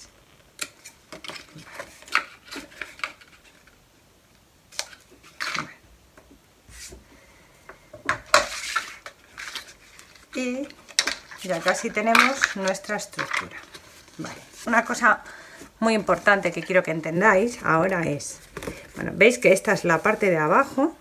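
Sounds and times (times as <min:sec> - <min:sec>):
card pieces rustling: 0:08.4 - 0:14.7.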